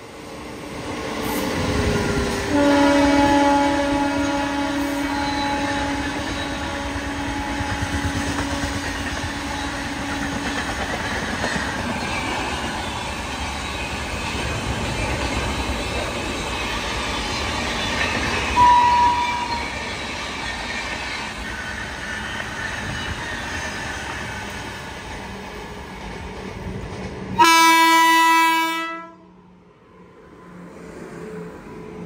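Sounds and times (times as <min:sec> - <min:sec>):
train rumble and wheel clatter: 0:00.0 - 0:32.0
short high horn toot: 0:18.6 - 0:19.7.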